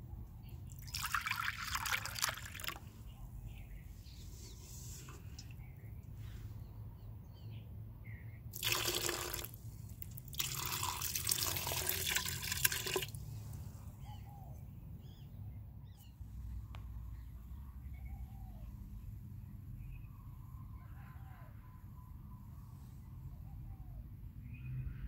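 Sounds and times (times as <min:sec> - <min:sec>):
liquid pouring and splashing into pot: 0:08.6 - 0:13.2.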